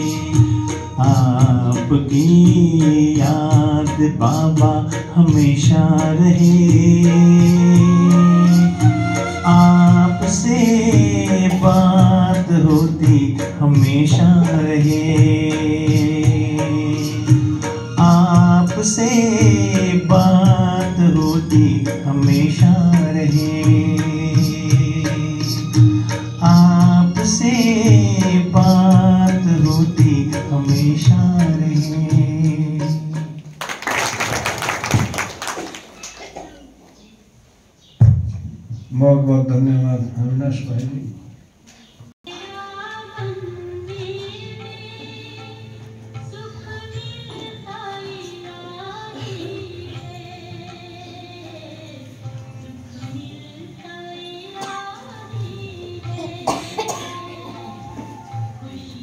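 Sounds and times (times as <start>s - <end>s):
song with singing and beat: 0.0s - 33.6s, 41.7s - 59.0s
hand clapping: 33.4s - 36.4s.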